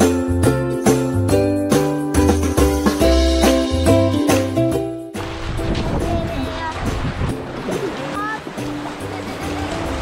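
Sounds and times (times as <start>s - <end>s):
background music: 0.0s - 10.0s
small waves breaking on shore: 5.2s - 10.0s.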